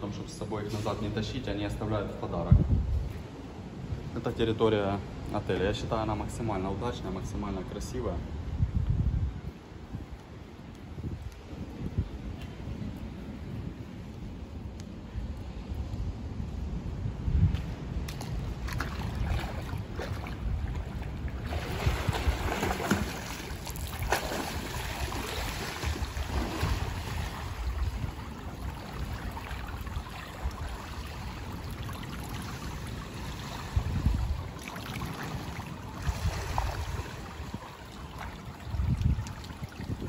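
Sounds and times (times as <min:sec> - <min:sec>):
wind rumbling on microphone: 0:00.0 - 0:40.0
pool water splashing: 0:18.6 - 0:40.0.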